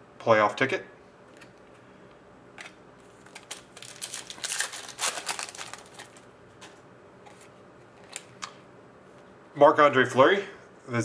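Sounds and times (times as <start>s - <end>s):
trading cards clicking and rustling: 2.6s - 8.6s.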